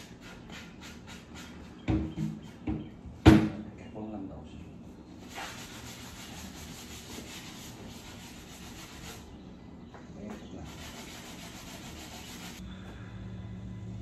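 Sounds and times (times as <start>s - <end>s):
hand sanding wood: 0.0s - 2.6s, 5.2s - 9.3s, 10.3s - 12.6s.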